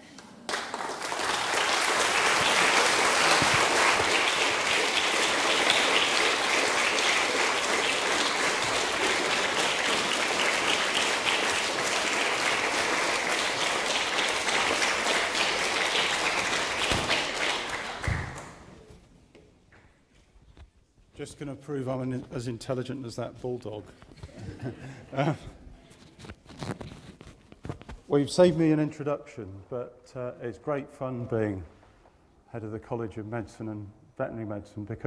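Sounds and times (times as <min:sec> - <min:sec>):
audience clapping: 0:00.0 - 0:18.8.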